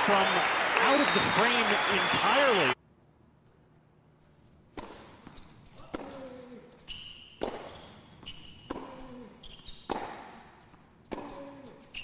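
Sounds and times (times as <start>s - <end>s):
shoes squeaking on hard court: 4.4s - 12.0s
tennis racket striking ball: 4.7s - 6.2s, 7.4s - 7.8s, 8.5s - 9.1s, 9.9s - 11.5s.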